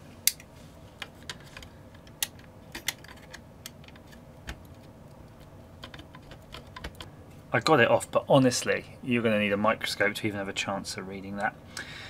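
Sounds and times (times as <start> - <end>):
thin metal clicking and snapping: 0.2 - 7.1.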